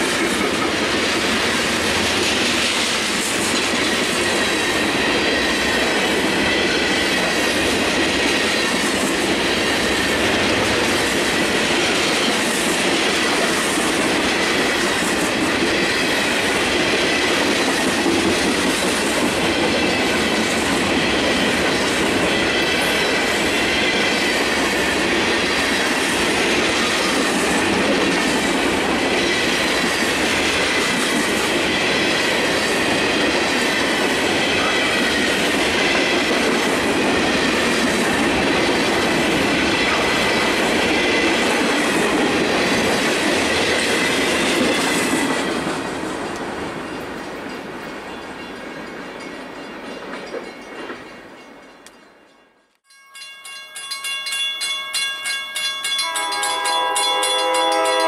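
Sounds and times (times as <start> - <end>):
freight train wheels rumbling: 0.0 - 52.0.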